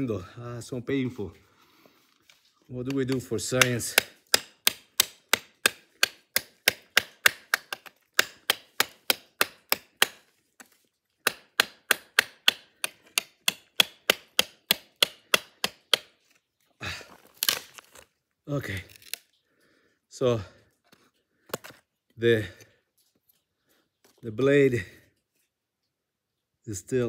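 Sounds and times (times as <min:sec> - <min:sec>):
knife chopping into hard wood: 0:03.1 - 0:16.1.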